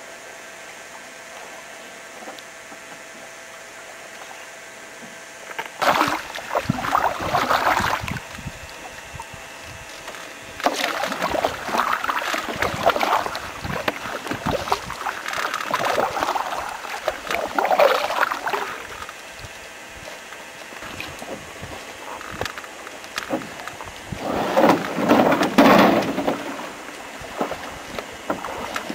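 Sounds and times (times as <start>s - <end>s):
paddle splashing water: 5.8s - 28.9s.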